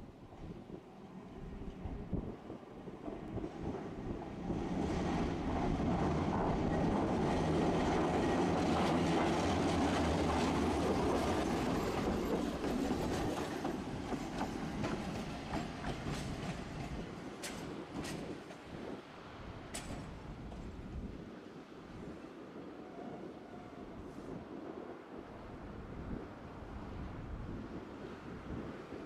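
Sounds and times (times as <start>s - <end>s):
streetcar wheels rumbling on rail: 0.1s - 21.1s.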